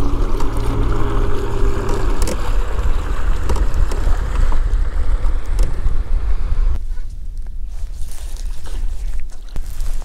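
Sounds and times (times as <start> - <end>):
wind buffeting microphone: 0.0 - 7.8.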